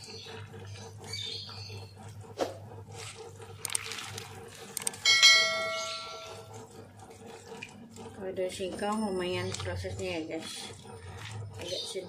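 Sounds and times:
faint water sloshing: 0:02.0 - 0:12.0
bell ding: 0:05.1 - 0:06.4.

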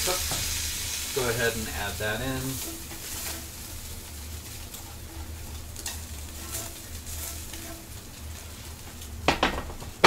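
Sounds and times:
food sizzling in a pot: 0:00.0 - 0:09.2
spatula scraping pot: 0:02.2 - 0:08.6.

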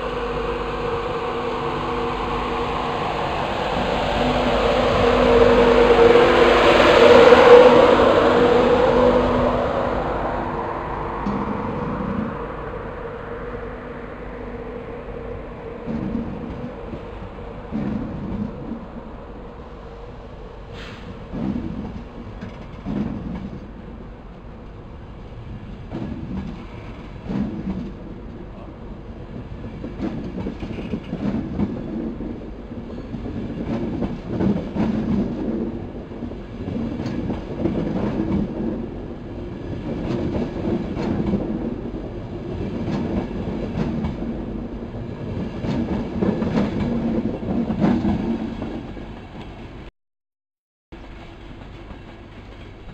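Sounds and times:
train coaches rumbling: 0:00.0 - 0:49.9, 0:51.0 - 0:52.9
train wheels clacking over rail joints: 0:20.7 - 0:23.7, 0:25.8 - 0:28.4, 0:29.6 - 0:35.9.

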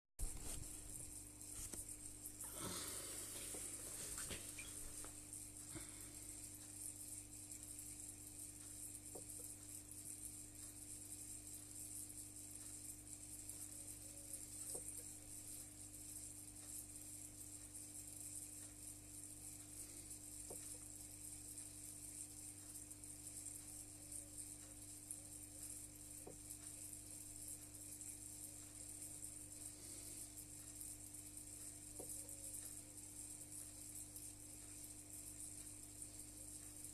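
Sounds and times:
faint high hiss: 0:00.2 - 0:09.6
aquarium equipment humming: 0:00.2 - 0:36.9
faint ticks: 0:00.2 - 0:36.9.

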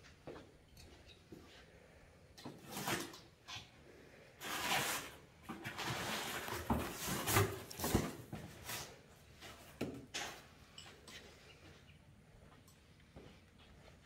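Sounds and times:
packing tape and cardboard scraping: 0:02.5 - 0:03.7, 0:04.4 - 0:09.0.

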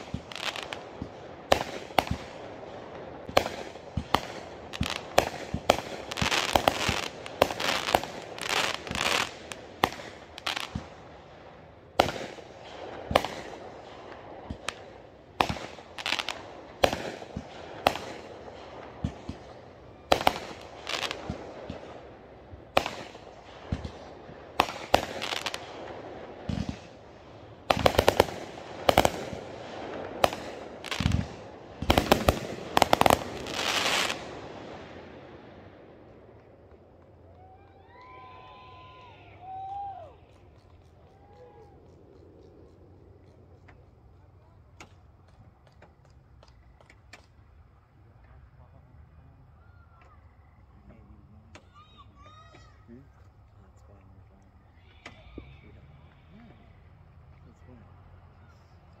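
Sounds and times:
fireworks bangs: 0:00.0 - 0:41.7
fireworks crackling: 0:00.0 - 0:48.8.

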